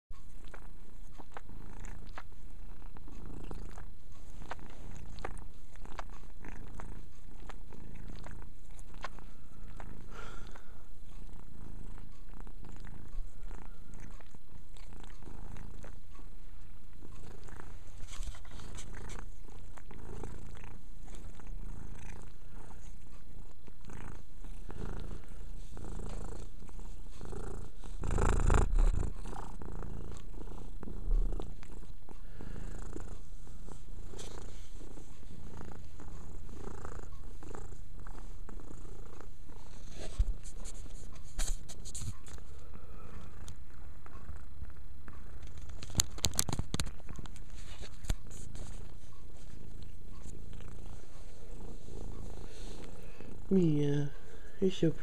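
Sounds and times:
cat purring: 0.1 - 55.0
rubbing against microphone: 17.0 - 32.2, 32.9 - 42.6, 45.4 - 53.3.

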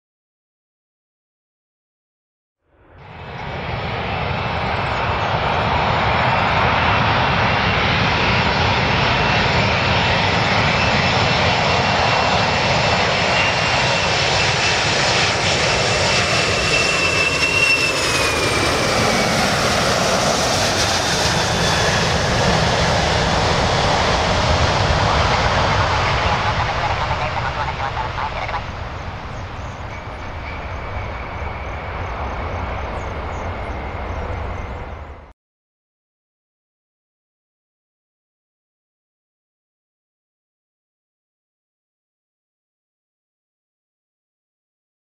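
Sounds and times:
jet airliner engines: 2.6 - 35.4
high whine: 12.9 - 35.3.

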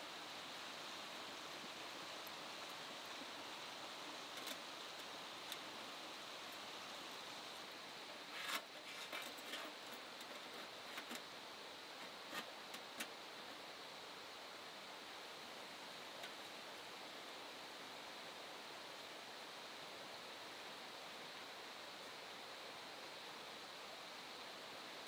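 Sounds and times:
river rushing: 0.0 - 25.0
light clicks and rustles: 4.2 - 5.7, 7.6 - 11.4, 12.0 - 13.2, 16.2 - 16.6.

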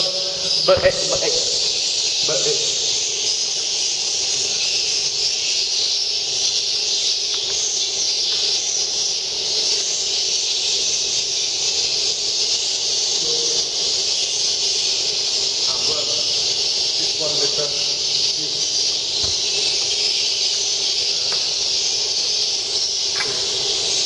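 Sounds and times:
steam hissing from humidifier: 0.0 - 24.0.

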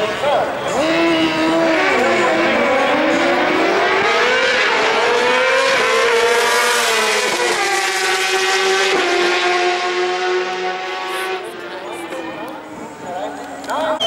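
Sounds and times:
superbike engines at full throttle: 0.0 - 14.0.

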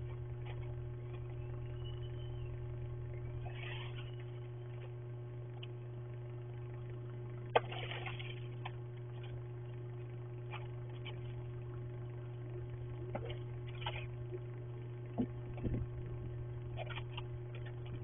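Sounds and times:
electrical hum: 0.0 - 18.0.

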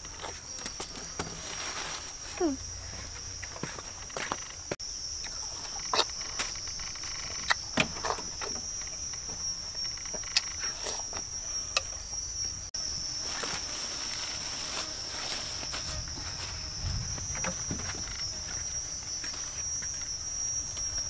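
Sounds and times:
insects buzzing: 0.0 - 21.0
knocks and rustles: 13.3 - 20.0.

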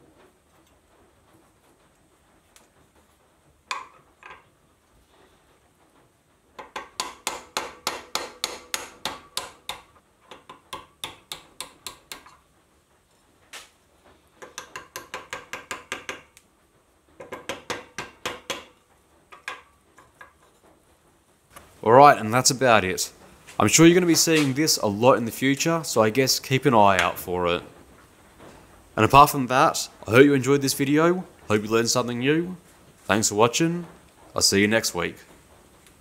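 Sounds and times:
hammer tapping steel pin: 6.6 - 12.4, 14.4 - 16.4, 17.2 - 20.4.

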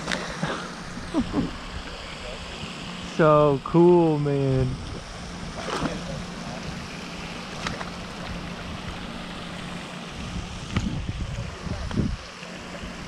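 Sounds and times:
steady rushing noise: 0.0 - 13.0
fish splashing into water: 4.8 - 11.6.

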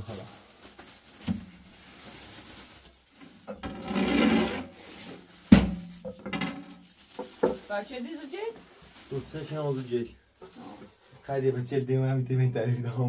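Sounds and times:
rubbing scraping sound: 3.6 - 5.3.

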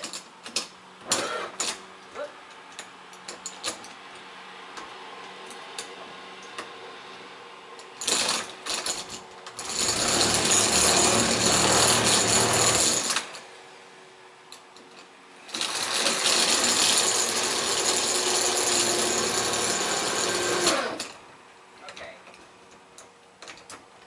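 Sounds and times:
power drill boring into metal: 15.5 - 21.1.

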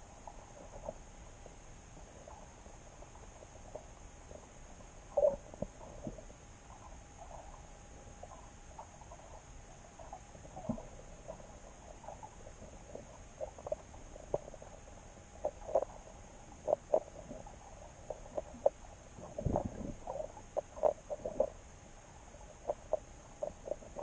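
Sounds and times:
underwater clicks and knocks: 15.4 - 16.0, 16.6 - 21.6, 22.5 - 24.0.

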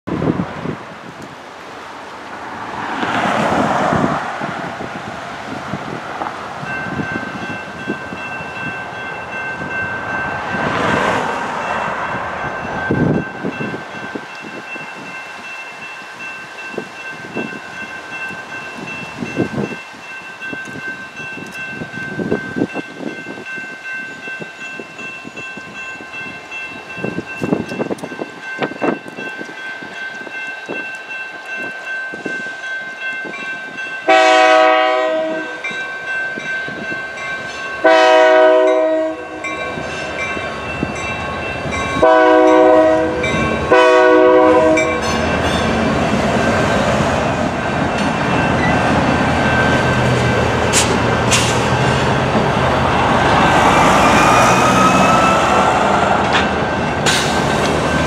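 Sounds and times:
electronic crossing bell ringing: 6.7 - 10.8, 12.4 - 43.8
locomotive horn blast: 34.1 - 35.7, 37.8 - 39.6, 42.0 - 45.1.

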